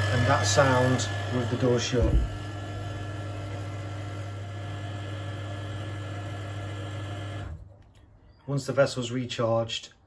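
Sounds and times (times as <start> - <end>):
muffled pump humming: 0.0 - 7.6.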